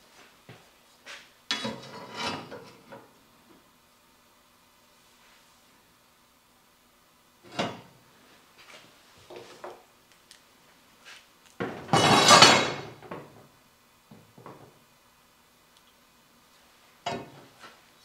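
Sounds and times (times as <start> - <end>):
metal bar scraping across frame: 1.5 - 2.9.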